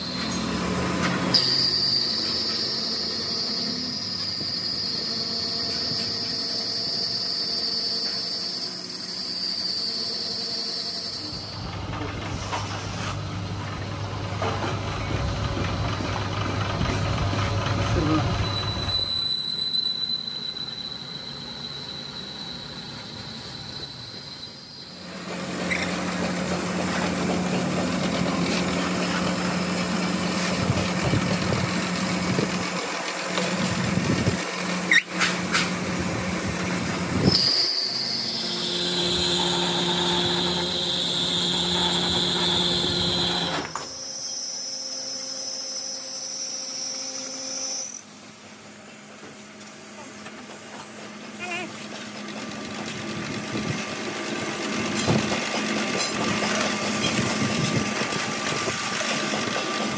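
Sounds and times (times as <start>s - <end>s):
high cutting whines: 0.0s - 12.1s, 18.0s - 27.6s, 36.2s - 48.4s.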